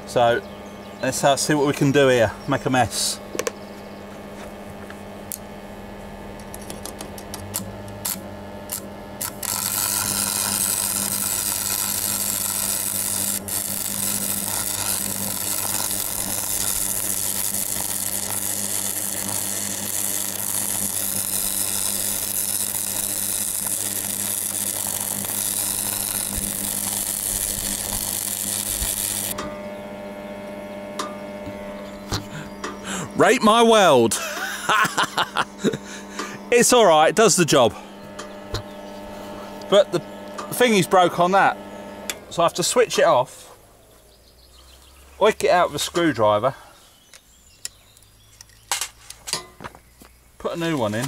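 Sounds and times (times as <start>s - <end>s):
welder mains hum: 0.0s - 51.0s
welding arc crackling: 5.2s - 43.7s, 50.4s - 51.0s
welding rod ticks: 6.4s - 29.5s.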